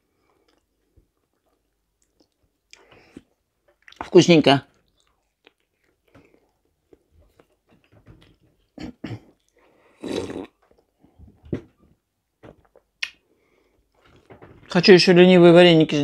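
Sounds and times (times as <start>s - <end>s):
soft chewing: 0.0s - 4.1s, 4.7s - 11.4s
slurping sip of tea: 9.9s - 10.6s.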